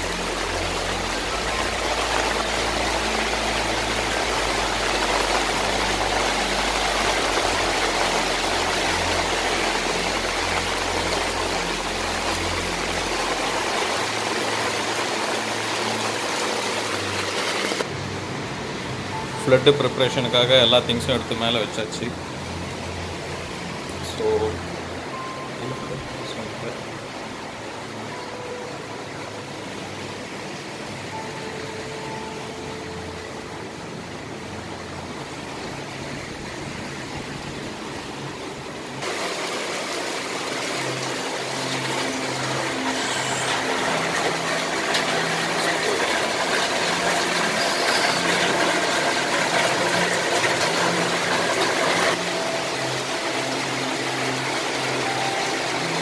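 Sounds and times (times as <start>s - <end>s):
heavy rain falling: 0.0s - 56.0s.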